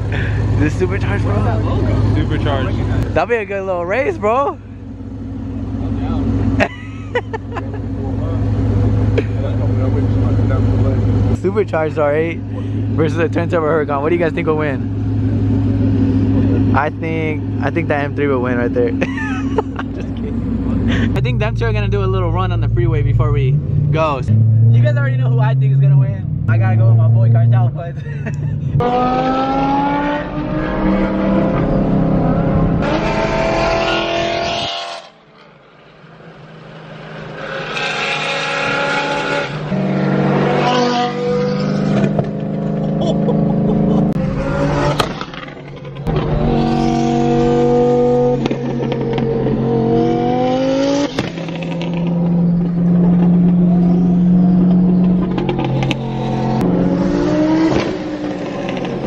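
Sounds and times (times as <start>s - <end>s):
engines accelerating hard: 0.0s - 59.0s
exhaust cracks: 39.4s - 59.0s.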